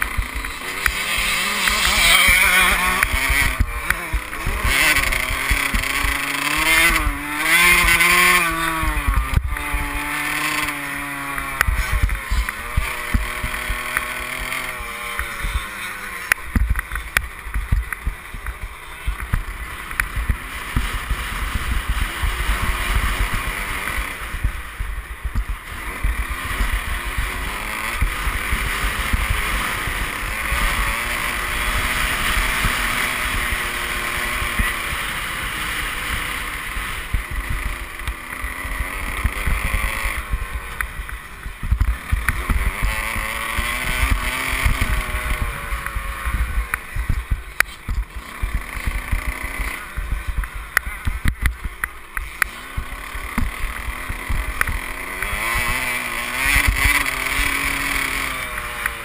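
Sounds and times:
motocross engine revving: 0:00.0 - 0:59.0.

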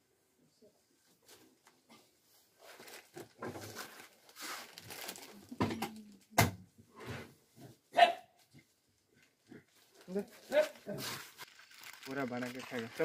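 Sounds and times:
plastic packets crinkling: 0:02.6 - 0:06.2, 0:09.7 - 0:13.0.

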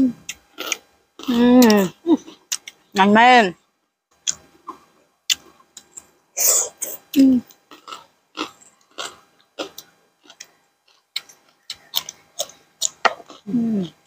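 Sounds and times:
chewing crunches and smacks: 0:00.3 - 0:02.8, 0:07.5 - 0:14.0.

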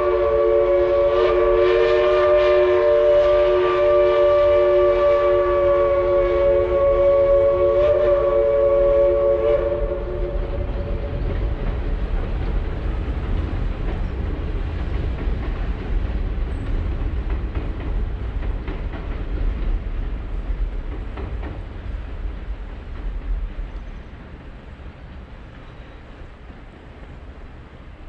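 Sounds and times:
steam whistle chord: 0:00.0 - 0:11.0
train rumbling across a steel bridge: 0:00.0 - 0:28.0.

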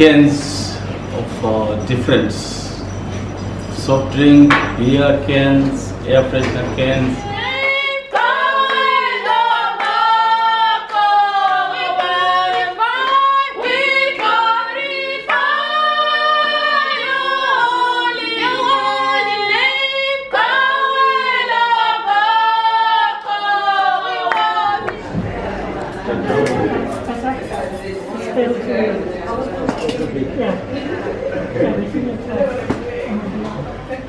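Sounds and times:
women singing a cappella: 0:05.8 - 0:28.2.

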